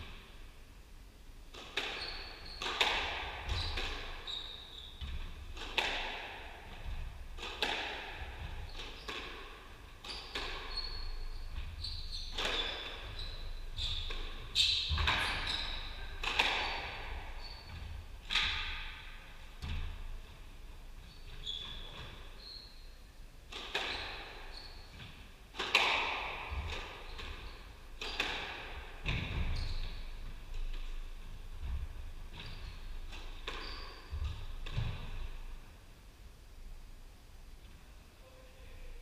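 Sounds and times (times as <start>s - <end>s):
squash ball hit by rackets: 1.5s - 2.0s, 2.6s - 4.2s, 5.0s - 10.8s, 11.5s - 13.2s, 13.8s - 17.3s, 18.2s - 20.0s, 23.5s - 24.3s, 25.5s - 27.4s, 28.0s - 29.9s, 33.1s - 35.4s
shoes squeaking on wooden floor: 3.4s - 5.4s, 10.0s - 18.7s, 19.6s - 22.9s, 26.5s - 35.5s.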